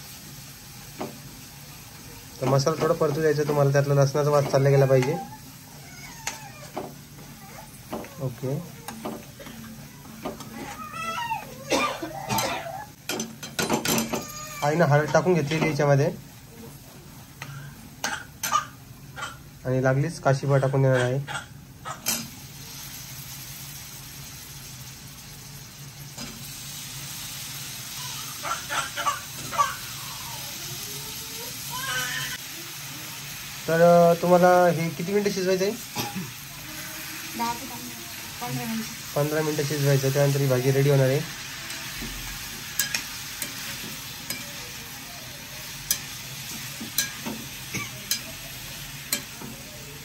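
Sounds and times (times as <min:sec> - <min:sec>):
pumpkin sizzling in hot oil: 0:00.0 - 0:20.9, 0:21.6 - 0:50.0
metal spatula scraping a pan: 0:41.4 - 0:44.7.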